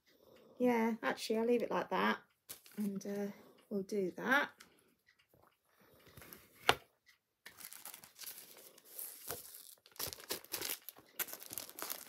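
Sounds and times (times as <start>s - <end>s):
wrapping crinkling: 2.5s - 2.9s, 7.5s - 12.0s.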